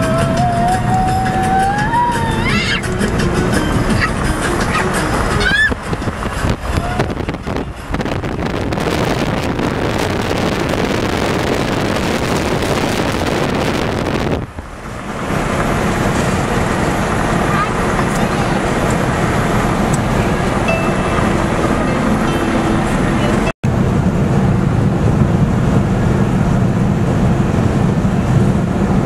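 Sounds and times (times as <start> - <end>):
road and wind noise: 0.0 - 29.0
high tone gliding upward: 19.7 - 23.5.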